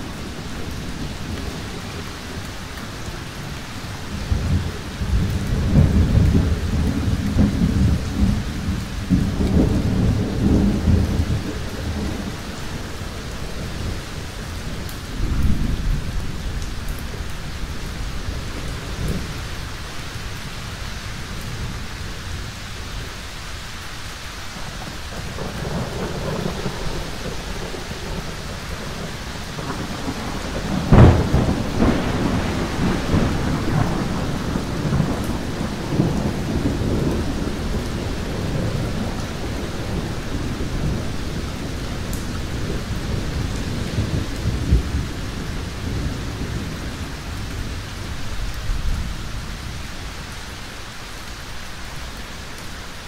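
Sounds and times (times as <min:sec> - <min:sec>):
thunder rumbling: 0:00.0 - 0:23.2, 0:24.6 - 0:50.2
heavy rain: 0:00.0 - 0:53.0
thunder clap: 0:04.3 - 0:12.4, 0:25.1 - 0:47.8.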